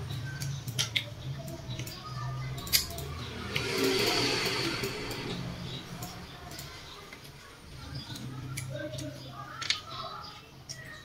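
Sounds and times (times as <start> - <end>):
low steady hum: 2.8 - 7.2.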